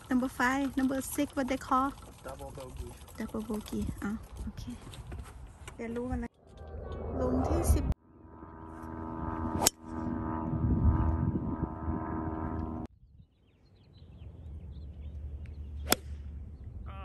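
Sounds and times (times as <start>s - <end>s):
steady mechanical hum: 6.4s - 12.9s
faint wind noise: 9.2s - 15.0s
golf club striking ball: 9.5s - 9.8s, 15.8s - 16.2s
bird chirps: 13.0s - 16.8s.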